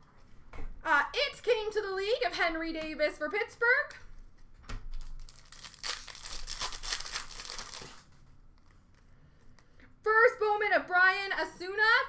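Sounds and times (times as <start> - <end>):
card pack wrapper crinkling: 4.9 - 8.2.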